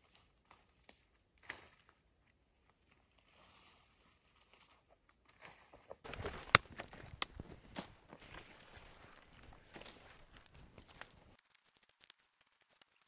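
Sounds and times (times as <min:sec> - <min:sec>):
branches rustling over leaves: 0:06.1 - 0:13.0
twigs snapping: 0:06.1 - 0:13.0.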